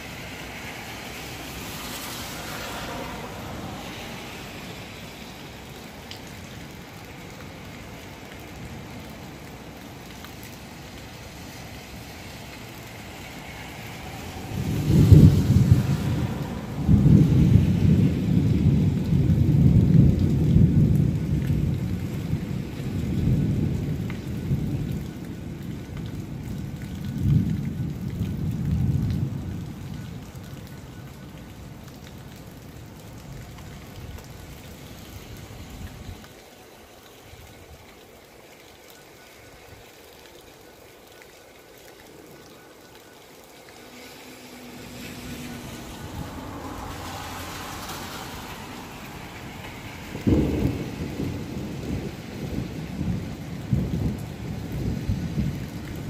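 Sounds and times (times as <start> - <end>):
steady rain: 0.0 - 56.0
thunder rumbling: 12.6 - 30.9, 44.9 - 56.0.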